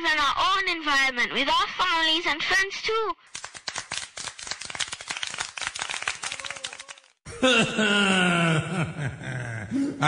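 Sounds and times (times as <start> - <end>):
rapid patter of clicks: 3.3 - 7.1
deep male voice groaning: 7.4 - 10.0.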